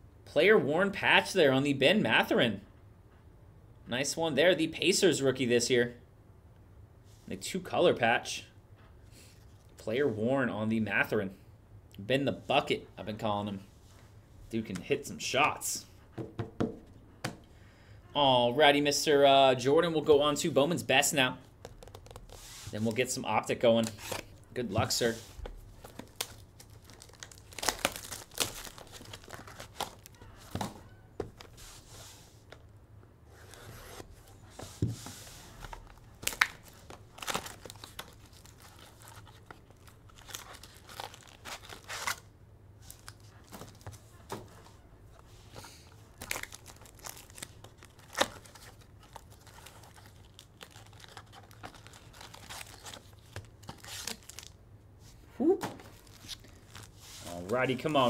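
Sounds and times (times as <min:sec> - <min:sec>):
cards rustling: 0:21.6 - 0:32.7, 0:33.4 - 0:54.6
foil packs tearing and crinkling: 0:25.9 - 0:30.2, 0:35.8 - 0:42.3, 0:46.1 - 0:54.6.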